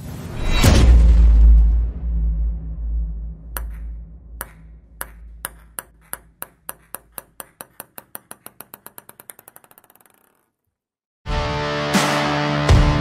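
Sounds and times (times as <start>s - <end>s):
table tennis ball bouncing: 3.6s - 10.7s.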